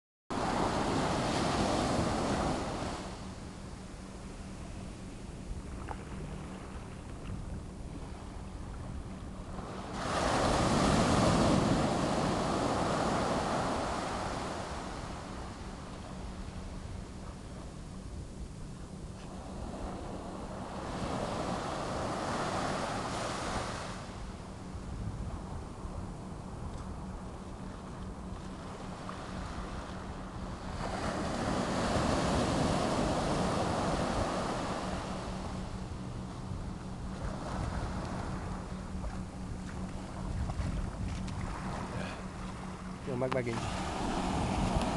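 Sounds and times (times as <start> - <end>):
ocean waves breaking on sand: 0.3 - 3.4, 9.4 - 17.4, 19.2 - 24.4, 28.4 - 36.5, 37.1 - 44.9
small waves washing: 5.7 - 16.6, 36.8 - 44.9
wave breaking on sand: 9.9 - 14.8.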